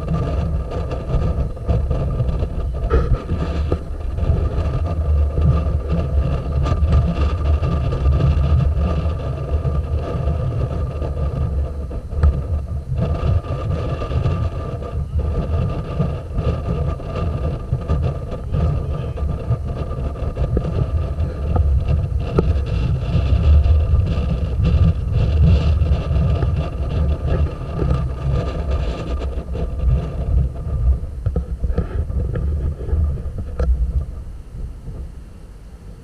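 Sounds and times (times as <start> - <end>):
boat engines humming: 0.0 - 36.0
wind buffeting microphone: 0.0 - 36.0.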